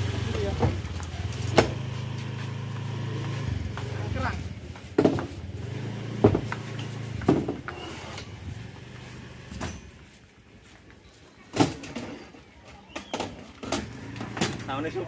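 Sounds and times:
equipment cases knocking and thumping: 5.0s - 5.3s, 6.2s - 6.6s, 7.2s - 7.7s.

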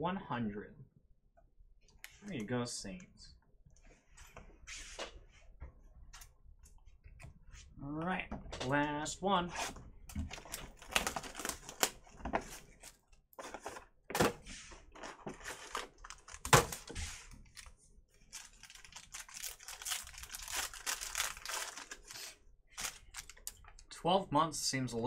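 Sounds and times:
foil wrapper crinkling and tearing: 10.5s - 12.0s, 18.3s - 23.6s.

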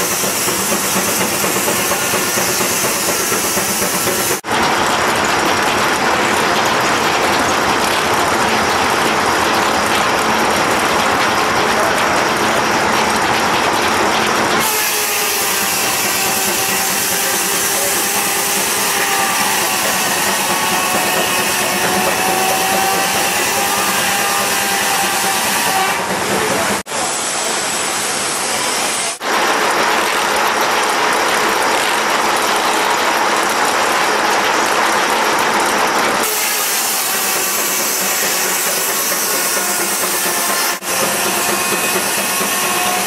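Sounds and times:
saw blade cutting log: 0.0s - 4.4s, 14.6s - 26.6s, 36.2s - 43.0s
ringing saw whine: 14.6s - 26.6s, 36.2s - 43.0s.

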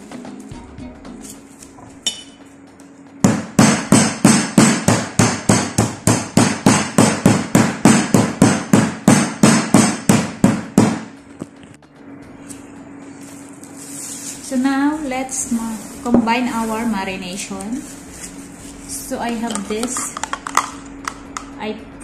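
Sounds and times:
meat mallet pounding: 3.2s - 11.2s.

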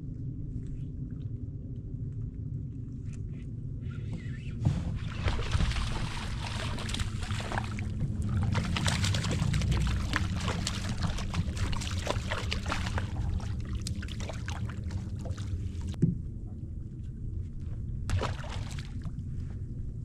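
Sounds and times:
steady low rumble: 0.0s - 20.0s
fish splashing in water: 4.9s - 16.0s, 18.1s - 19.1s.

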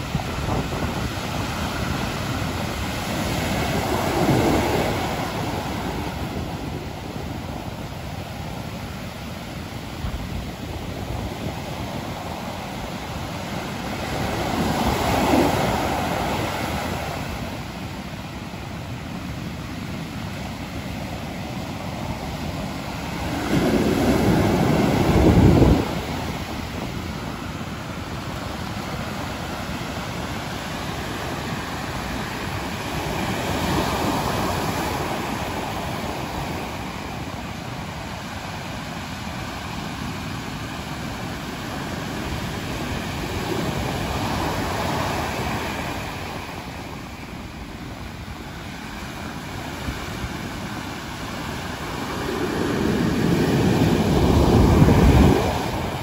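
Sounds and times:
sea surf crashing on beach: 0.0s - 56.0s
wind buffeting microphone: 0.0s - 56.0s.

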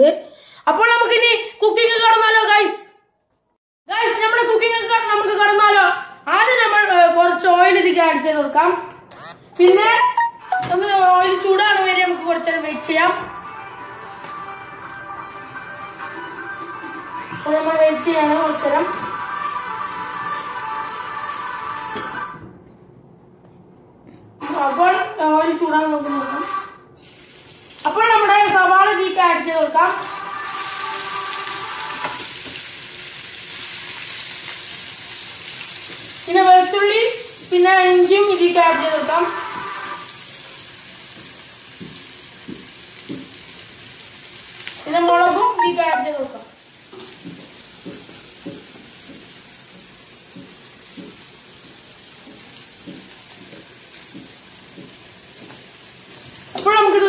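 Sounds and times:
onion sizzling in hot oil: 27.0s - 57.0s.

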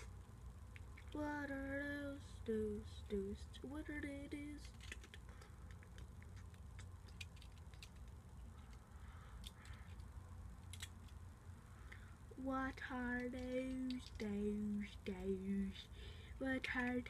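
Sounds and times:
low background hum: 0.0s - 17.0s
boy singing held notes: 1.0s - 4.8s, 12.3s - 17.0s
plastic bricks clicking: 4.6s - 8.8s, 13.0s - 14.2s.

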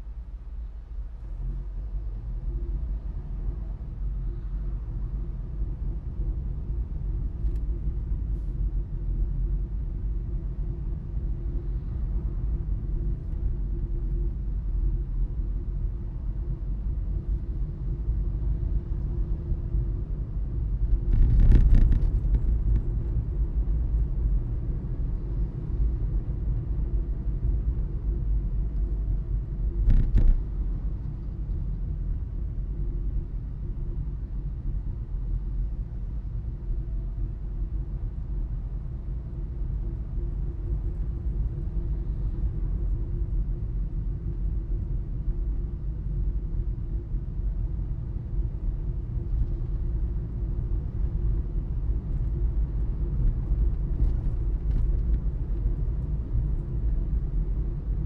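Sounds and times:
car engine and tyre rumble: 0.0s - 58.0s
faint constant hum: 0.0s - 58.0s.

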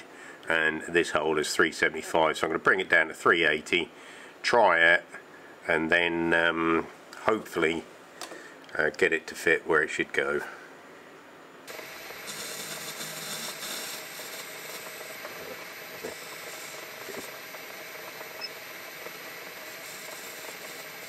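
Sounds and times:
metal lathe whirring: 11.7s - 21.0s.

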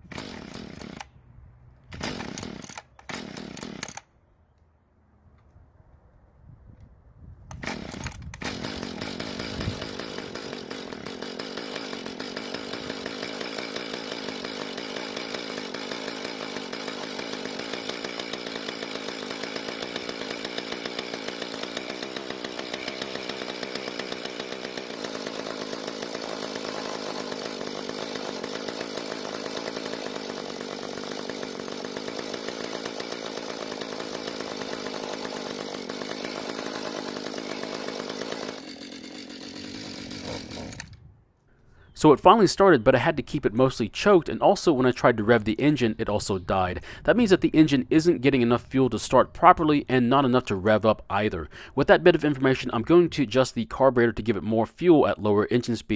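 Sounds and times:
small gas engine running: 0.0s - 1.2s, 1.9s - 4.0s, 7.5s - 41.1s.

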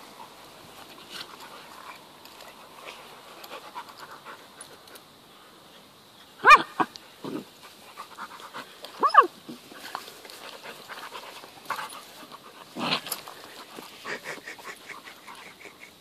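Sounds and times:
dogs panting: 0.0s - 5.1s, 7.6s - 9.0s, 9.7s - 16.0s
dog crying: 9.0s - 9.3s
dog yelping: 9.0s - 9.3s.

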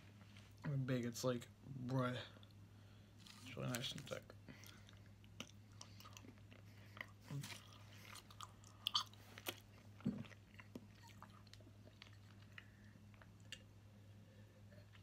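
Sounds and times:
person chewing: 4.5s - 13.7s.

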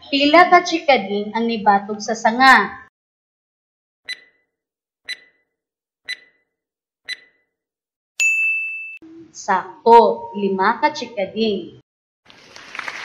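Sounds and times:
clock ticking: 4.1s - 4.4s, 5.1s - 5.4s, 6.1s - 6.4s, 7.1s - 7.4s
high ding: 8.2s - 9.0s.

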